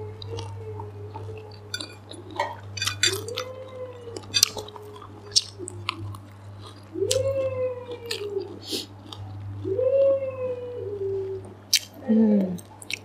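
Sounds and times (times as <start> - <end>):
low electrical hum: 0.0 - 13.0
person chewing: 0.2 - 9.6, 11.7 - 13.0
utensils clinking on plate: 1.7 - 3.5, 4.2 - 4.7.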